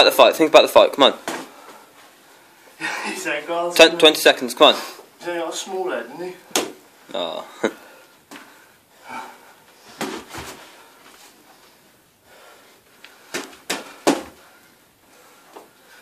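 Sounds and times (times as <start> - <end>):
boxing gloves thudding: 13.3 - 14.4.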